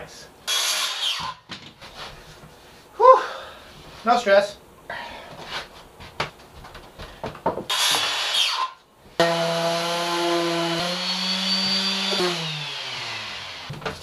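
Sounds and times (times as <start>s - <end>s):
wood handling knocks: 6.1s - 7.7s
orbital sander running on wood: 9.2s - 13.7s.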